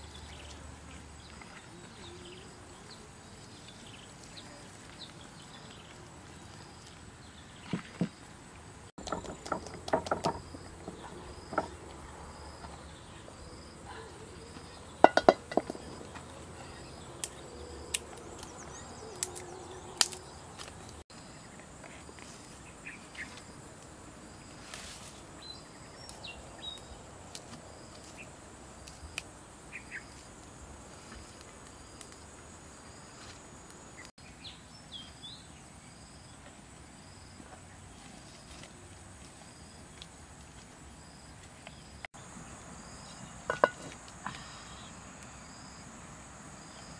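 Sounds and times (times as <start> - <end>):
insect chirping: 5.4 - 37.5, 38.2 - 46.9
clicks and knocks of utensils: 15.0 - 15.8, 43.5 - 43.9.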